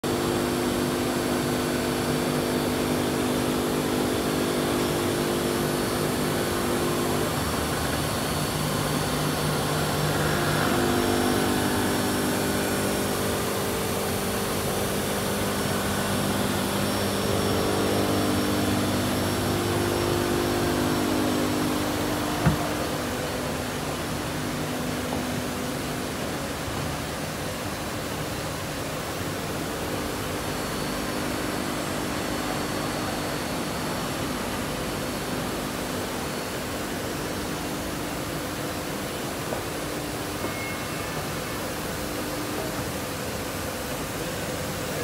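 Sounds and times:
motor hum: 0.1s - 27.3s.

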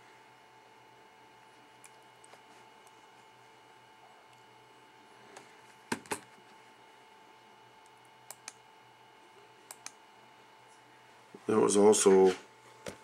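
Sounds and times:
faint electrical hum: 0.0s - 13.0s
short light clicks: 7.8s - 8.6s, 9.7s - 10.0s.

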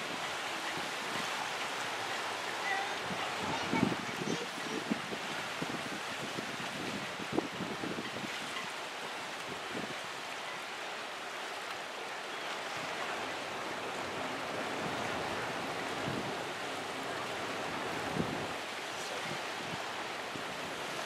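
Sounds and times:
sea water: 0.0s - 21.0s
wind buffeting microphone: 2.2s - 8.8s, 14.6s - 21.0s.

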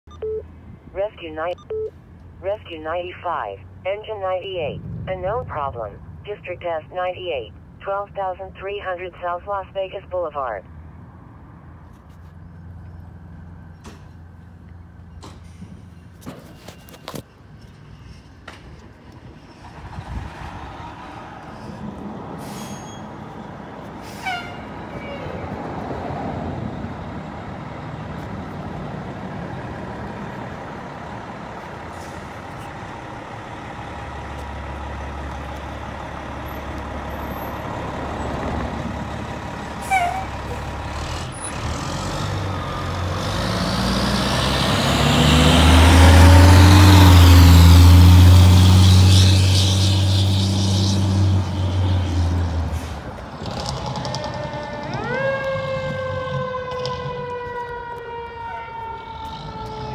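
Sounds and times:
fire truck diesel engine: 0.2s - 59.9s.

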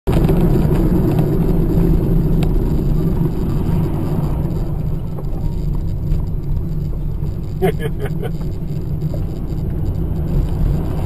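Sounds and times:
car engine drone: 0.0s - 11.0s
tyres on the road: 0.1s - 11.0s.

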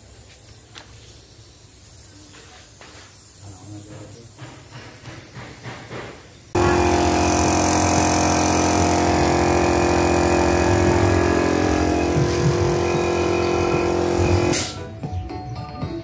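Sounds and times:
compressor hiss: 0.0s - 14.8s
air compressor humming: 6.5s - 14.8s.

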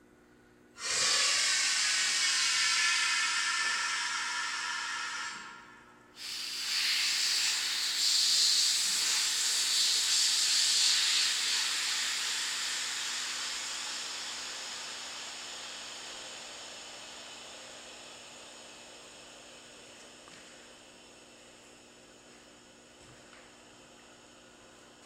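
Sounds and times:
compressed air hissing through valve: 0.8s - 20.3s.

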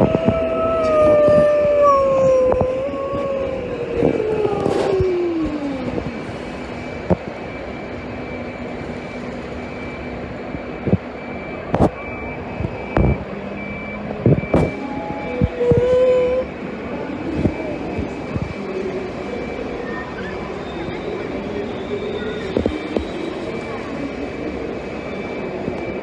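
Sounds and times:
low hum of standing train: 0.0s - 26.0s
faint high beep: 6.4s - 16.5s, 17.8s - 26.0s.

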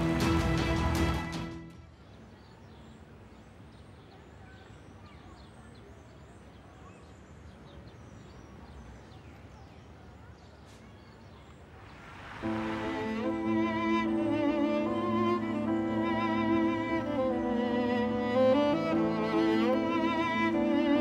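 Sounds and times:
outdoor background noise: 0.0s - 21.0s
rising whoosh: 11.8s - 14.2s
bowed string music: 12.4s - 21.0s.

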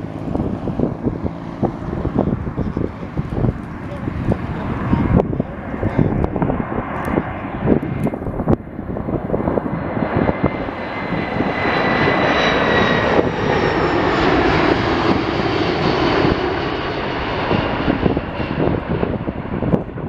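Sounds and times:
jet passing low overhead: 0.0s - 20.0s.

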